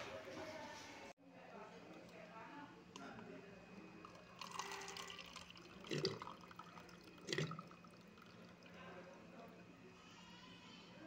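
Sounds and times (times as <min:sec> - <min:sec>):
water running into plastic cup: 0:03.9 - 0:09.0.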